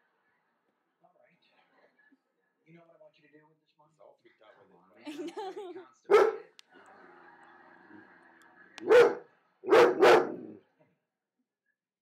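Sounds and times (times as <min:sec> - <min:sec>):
dog barking: 0:06.1 - 0:06.5, 0:08.8 - 0:10.6.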